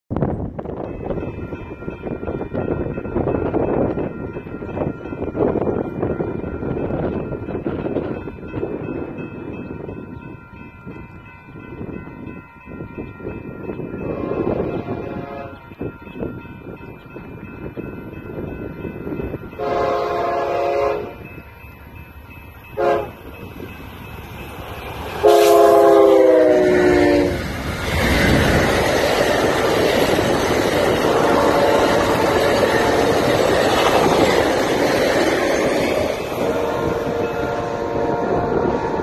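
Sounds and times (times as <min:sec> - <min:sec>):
train cars rumbling on rails: 0:00.1 - 0:39.0
train horn blasts: 0:14.0 - 0:15.7, 0:19.5 - 0:21.3, 0:22.8 - 0:23.2, 0:25.2 - 0:27.4, 0:30.9 - 0:34.2, 0:36.0 - 0:39.0.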